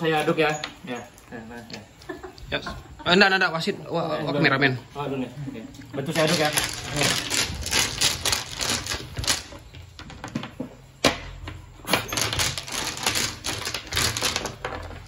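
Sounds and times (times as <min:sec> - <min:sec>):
domino tiles clattering: 0:06.1 - 0:10.4, 0:12.0 - 0:15.0.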